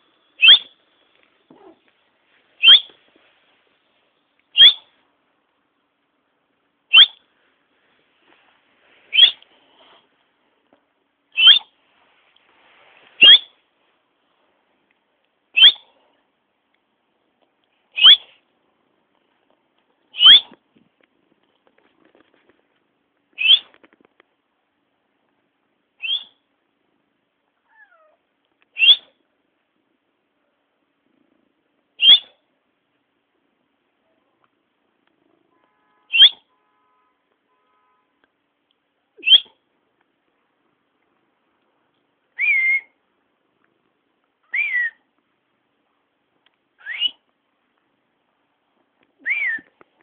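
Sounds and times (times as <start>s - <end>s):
cat meowing high-pitched: 27.6s - 28.2s.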